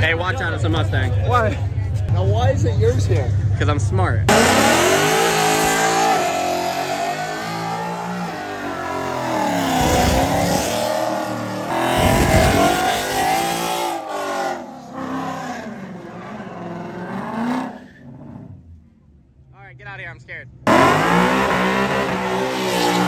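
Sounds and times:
car engine revving hard: 0:04.3 - 0:18.6, 0:20.7 - 0:23.0.

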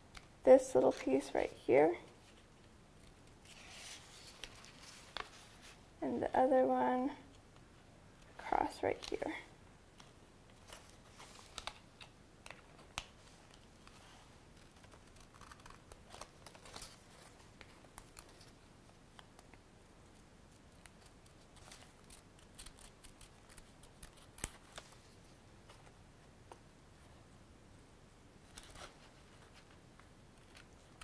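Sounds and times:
scissors snipping paper: 0:14.6 - 0:16.8, 0:20.6 - 0:24.8.

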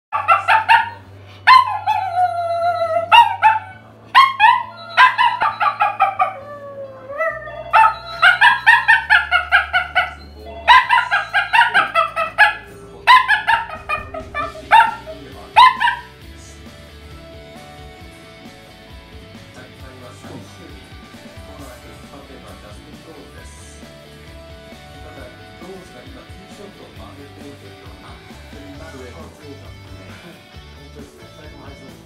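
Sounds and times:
short yelping howls: 0:00.2 - 0:16.1
dog howling: 0:00.2 - 0:16.2.

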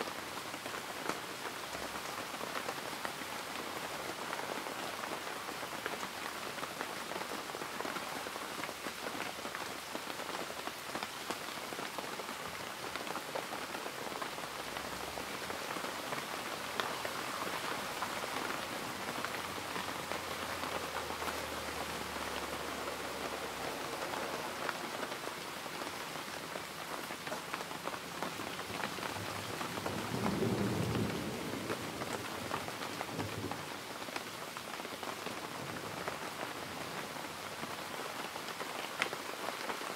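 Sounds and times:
steady rain falling: 0:00.0 - 0:39.9.

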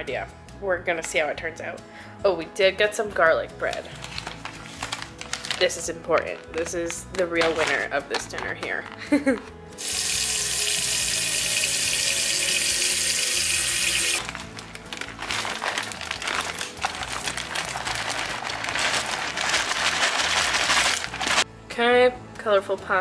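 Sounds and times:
tap water running: 0:09.8 - 0:14.2.

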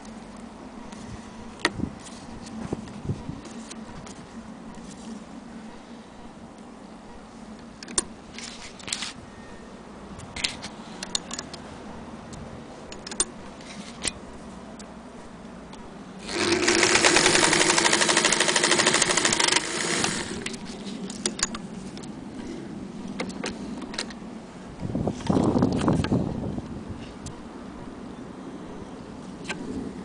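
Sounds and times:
sewing machine stitching: 0:16.2 - 0:20.5.

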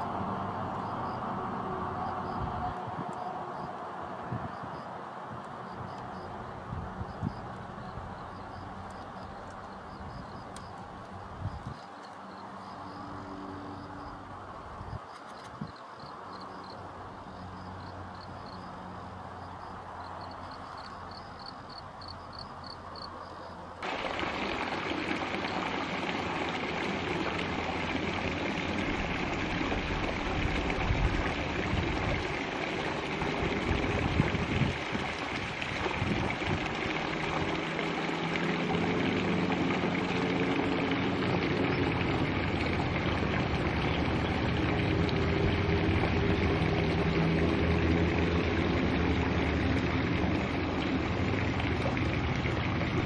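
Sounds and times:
insect chirping: 0:07.1 - 0:14.2, 0:14.8 - 0:23.7.

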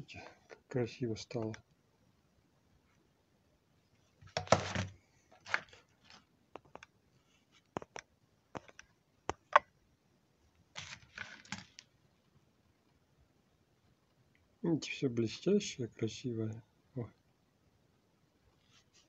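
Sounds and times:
rustling: 0:10.6 - 0:12.4.

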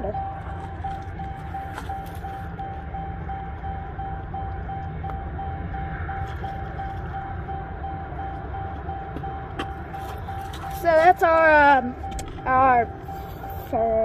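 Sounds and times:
door warning chime beeping: 0:00.0 - 0:14.0
low rumble: 0:00.0 - 0:14.0.

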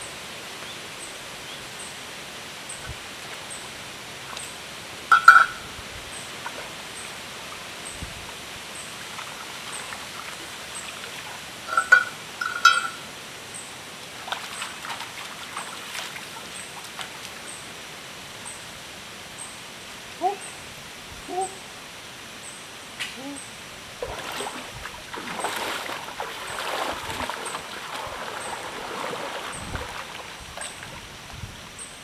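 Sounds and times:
steady hiss: 0:00.0 - 0:25.2
bird calls: 0:20.2 - 0:20.6
basket moving in water: 0:24.0 - 0:31.0.

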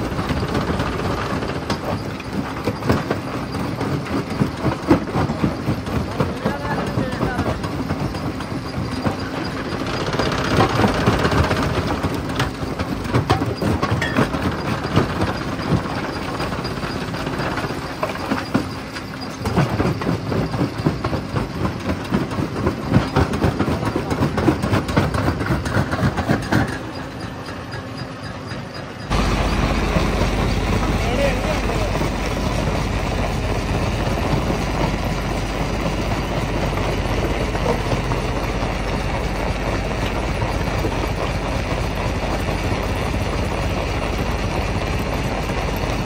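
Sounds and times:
rock crusher running: 0:00.0 - 0:46.0
steady low hum: 0:28.8 - 0:46.0.

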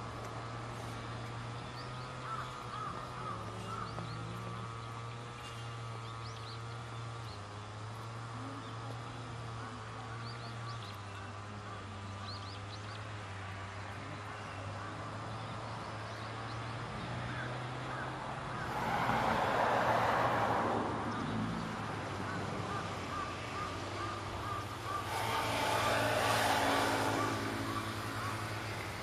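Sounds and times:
vehicles passing on road: 0:00.0 - 0:29.0.

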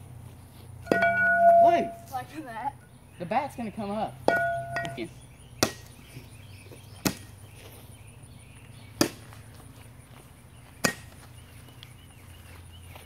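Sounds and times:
bat hitting glass bottle: 0:00.8 - 0:02.1, 0:04.3 - 0:05.9, 0:10.8 - 0:11.1.

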